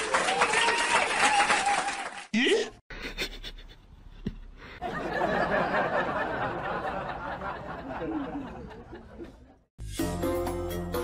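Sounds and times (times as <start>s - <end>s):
people laughing: 4.8s - 9.7s
music: 9.8s - 11.0s.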